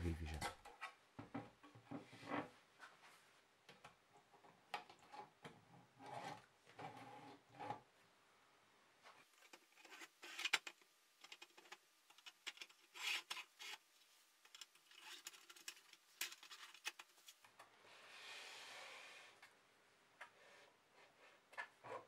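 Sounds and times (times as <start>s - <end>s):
plastic scraping and rubbing: 9.2s - 17.6s.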